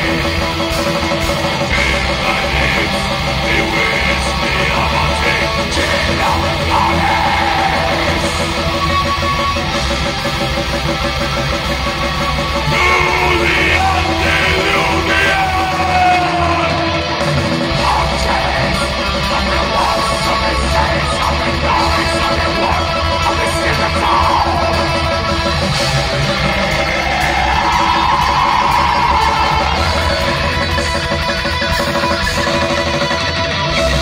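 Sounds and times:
harsh shouted vocals: 0.0 - 9.8, 12.5 - 34.0
bass guitar: 0.0 - 34.0
distorted electric guitars: 0.0 - 34.0
drums: 0.0 - 34.0.

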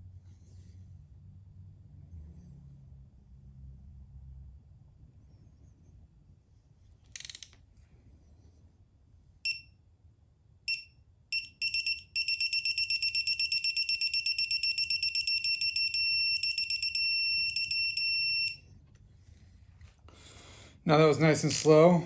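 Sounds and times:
digital torque wrench beeping: 9.5 - 9.7, 10.7 - 18.6.

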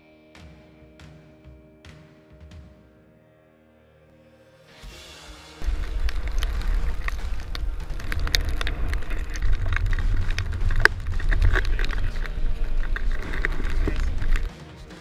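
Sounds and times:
wind buffeting microphone: 5.6 - 14.5
sharp ticks and crackles: 5.6 - 14.6.

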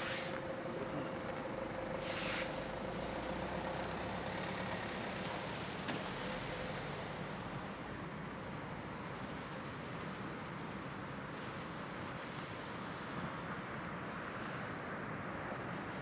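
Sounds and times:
brief hiss: 0.0 - 0.5, 2.0 - 3.3
low outdoor background noise: 0.0 - 16.0.

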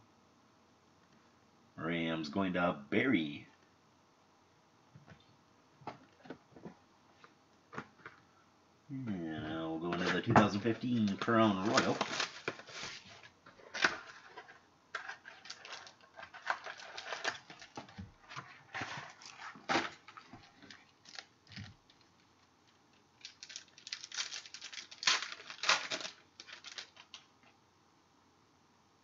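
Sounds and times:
card pack rustling: 9.8 - 22.5, 23.2 - 27.3.

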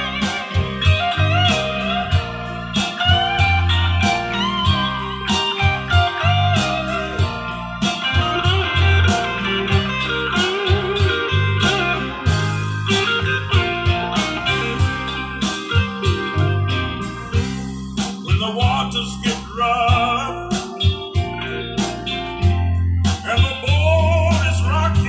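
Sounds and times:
guitar-led music over loudspeakers: 0.0 - 25.0.

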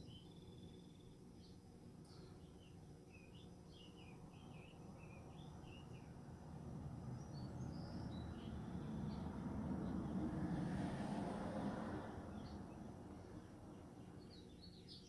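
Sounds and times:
songbird warbling chirps: 0.0 - 6.2, 7.1 - 10.2, 12.3 - 15.0.

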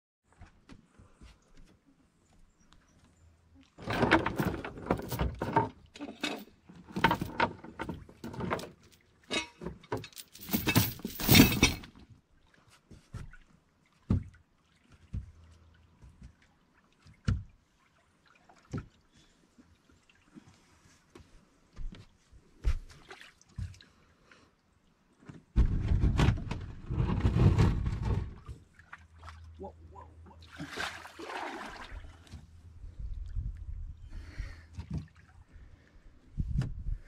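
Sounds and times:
anchor chain rattling: 3.8 - 11.9.

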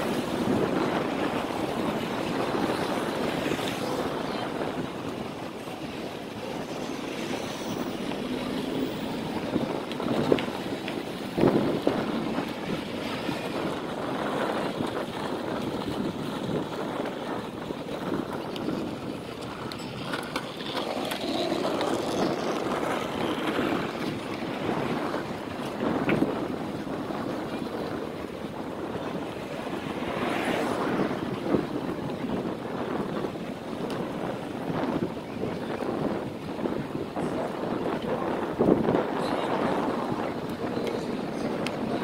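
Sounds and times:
wind rushing: 0.0 - 19.4, 21.2 - 42.0
bicycle ride noise: 0.0 - 42.0.

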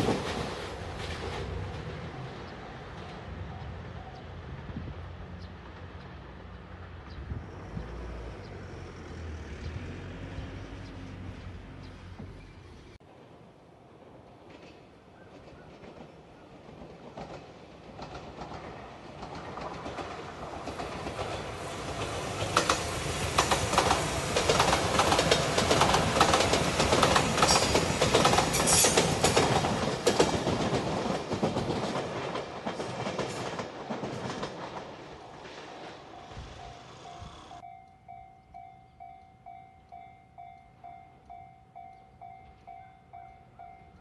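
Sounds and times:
train passing rumble: 0.0 - 44.0
wheels clicking over rail joints: 14.4 - 36.8.

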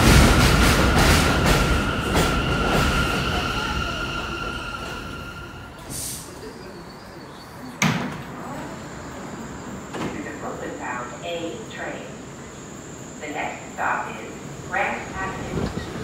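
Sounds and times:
subway train braking whine: 0.0 - 7.8
air hiss: 5.8 - 6.5.

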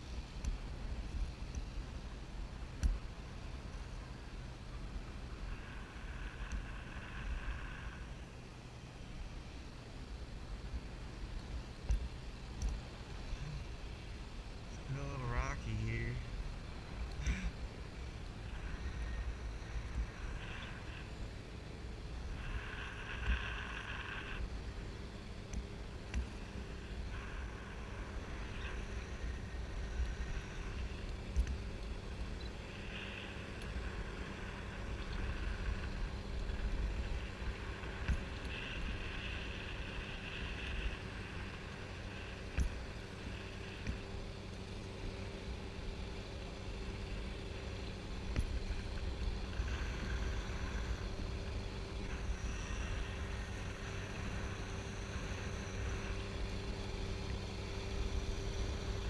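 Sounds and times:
faint steady hum: 0.0 - 59.0
light clicks: 11.3 - 12.8.

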